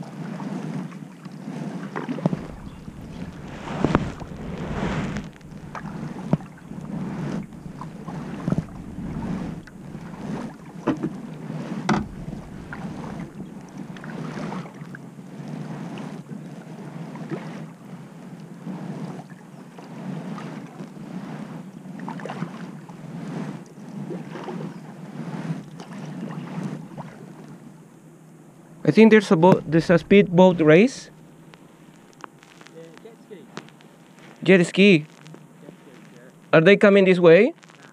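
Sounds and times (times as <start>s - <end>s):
paddle splashing into water: 0.3s - 15.0s.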